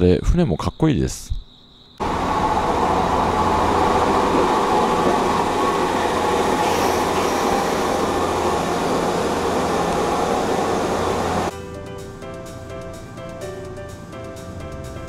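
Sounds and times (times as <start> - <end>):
electric train passing: 2.0 - 15.0.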